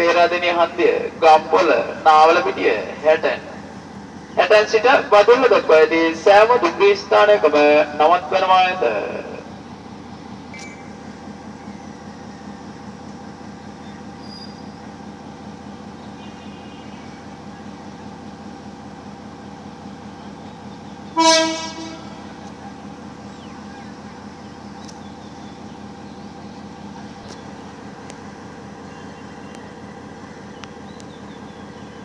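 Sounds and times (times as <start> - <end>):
diesel locomotive engine drone: 0.0 - 32.0
train horn blast: 21.1 - 22.5.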